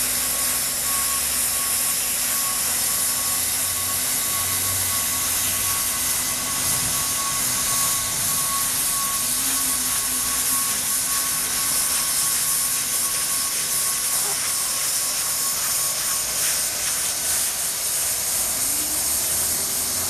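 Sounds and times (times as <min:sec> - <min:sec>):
faint motor whine: 0:00.0 - 0:20.0
hot air rushing: 0:04.9 - 0:20.0.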